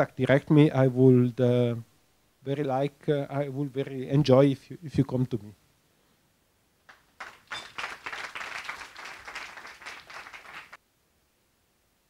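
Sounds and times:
audience applauding: 6.9s - 10.8s.

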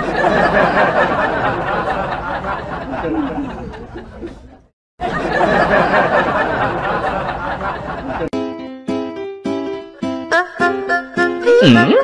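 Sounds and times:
crowd chattering and laughing: 0.0s - 8.3s.

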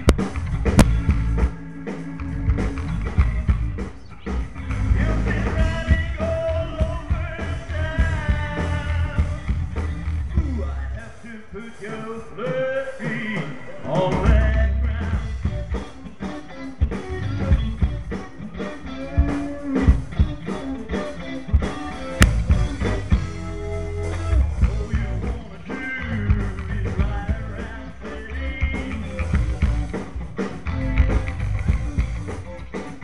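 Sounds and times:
electric bass: 0.0s - 11.4s, 13.9s - 33.0s
electric guitar: 0.0s - 33.0s
live rock band: 0.0s - 33.0s.

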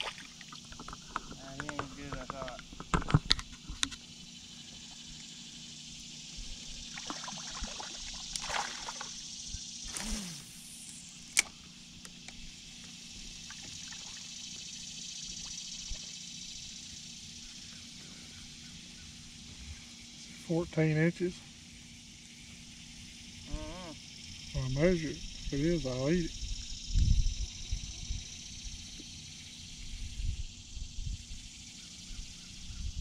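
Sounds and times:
water trickling and lapping: 0.0s - 1.5s, 6.3s - 10.1s, 13.3s - 16.0s
steady high hiss: 0.0s - 33.0s
light clicks and rattles: 0.6s - 4.0s.

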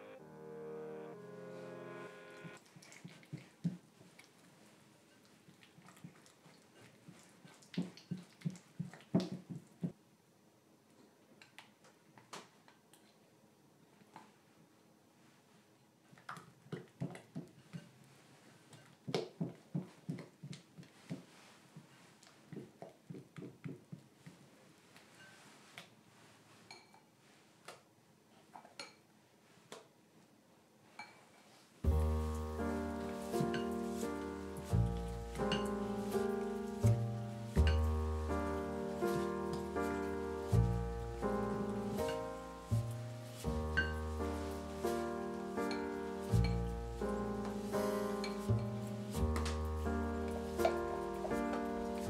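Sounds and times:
spatula clinking glass bowl: 35.4s - 36.4s, 37.6s - 38.0s, 43.6s - 44.2s.

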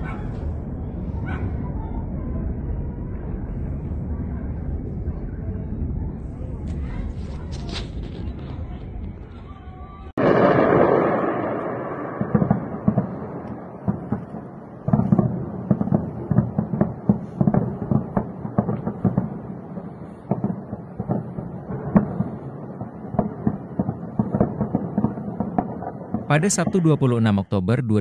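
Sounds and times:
distant explosions crackling: 0.0s - 27.0s
large blast rumble: 10.1s - 26.3s.

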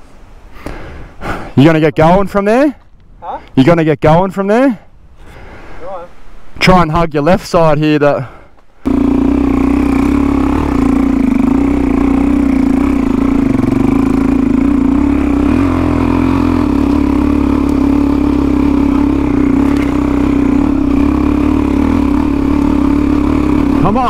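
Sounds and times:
motorcycle engine running: 8.8s - 24.0s.

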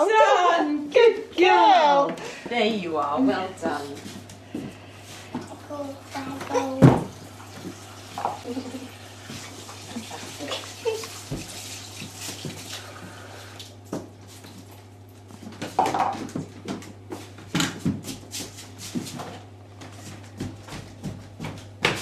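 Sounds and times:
steady low hum: 0.0s - 10.7s.

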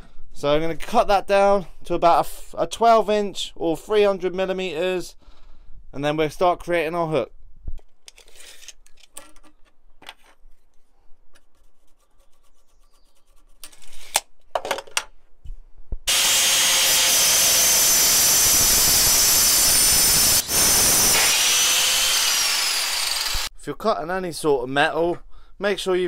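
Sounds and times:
angle grinder cutting steel: 16.1s - 23.5s.

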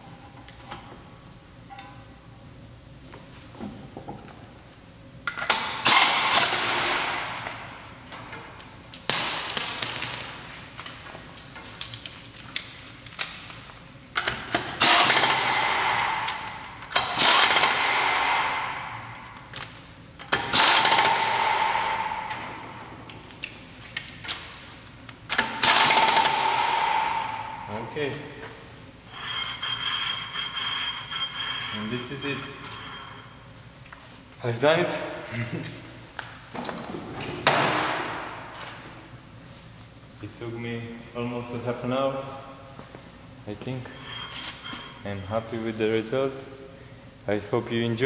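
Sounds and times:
pneumatic impact wrench rattling: 5.4s - 7.4s, 14.2s - 19.1s, 20.2s - 22.6s, 25.3s - 27.8s.

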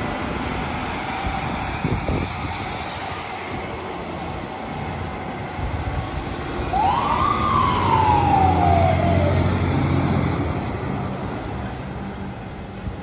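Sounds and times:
fire engine pulling away: 6.0s - 12.7s
emergency vehicle siren: 6.6s - 10.6s.

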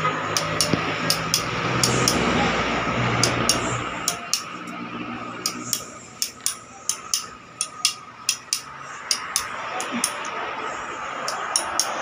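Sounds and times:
small hammer tapping metal: 0.3s - 2.3s, 3.2s - 4.8s, 5.4s - 10.3s, 11.2s - 12.0s.

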